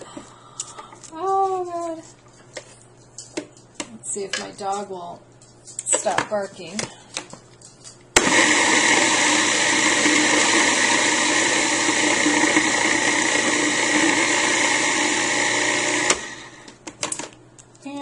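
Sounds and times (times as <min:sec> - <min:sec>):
food processor chopping vegetables: 0:08.2 - 0:16.8.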